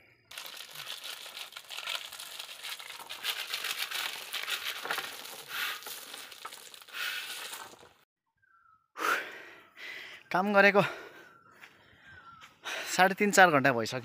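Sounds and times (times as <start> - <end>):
gravel pouring onto stones: 0.3 - 7.9.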